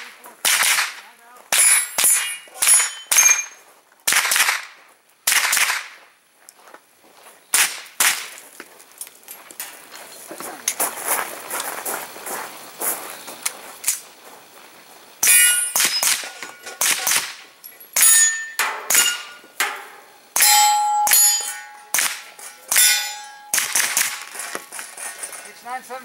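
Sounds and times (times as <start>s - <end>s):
gunshots: 0.0s - 3.5s, 4.1s - 6.0s, 7.5s - 8.4s, 15.2s - 24.7s
steel target ringing: 1.5s - 3.6s, 15.2s - 17.2s, 17.9s - 24.7s.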